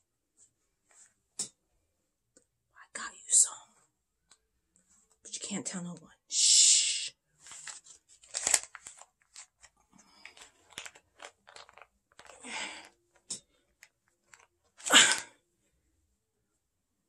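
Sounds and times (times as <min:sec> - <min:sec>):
paper banknotes crinkling: 0:07.4 - 0:12.9, 0:13.8 - 0:14.9.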